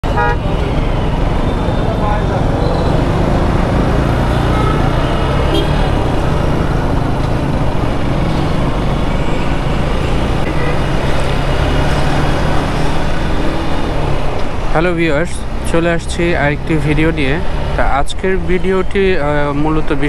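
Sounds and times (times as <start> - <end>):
road and traffic noise: 0.0 - 20.0
motorcycle engine accelerating: 2.1 - 18.0.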